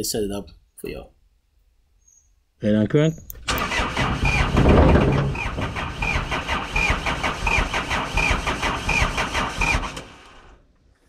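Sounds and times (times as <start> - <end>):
diesel engine cranking: 3.3 - 10.6.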